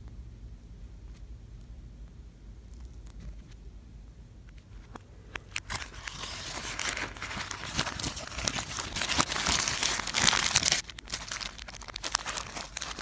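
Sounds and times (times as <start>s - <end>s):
paper wrapper crinkling: 5.5s - 13.0s.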